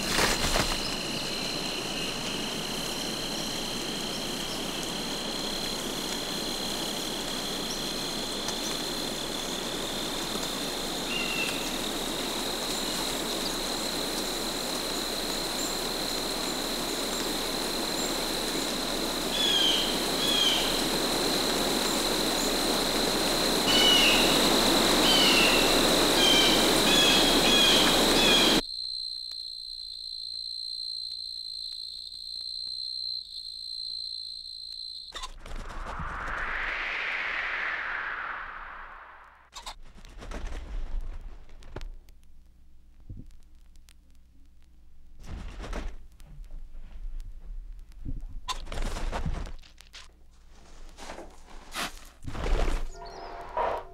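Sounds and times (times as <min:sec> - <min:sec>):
hiss: 0:00.0 - 0:28.6
insect trill: 0:00.0 - 0:39.7, 0:52.8 - 0:53.9.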